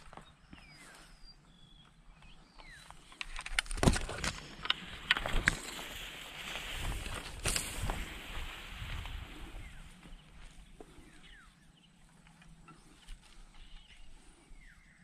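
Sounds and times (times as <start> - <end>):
small birds chirping: 0.0 - 15.0
steady rustling hiss: 4.3 - 11.4.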